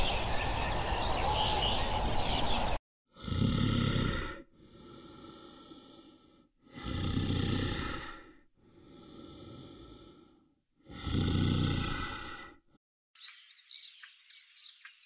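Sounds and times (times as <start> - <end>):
large animal breathing heavily: 3.1 - 12.8.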